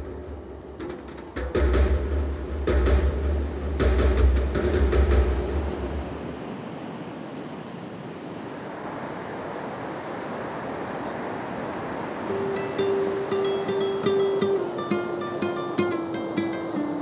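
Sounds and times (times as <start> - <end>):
background music: 0.0 - 6.3
ocean waves washing onto beach: 0.0 - 17.0
plucked tune: 12.3 - 17.0.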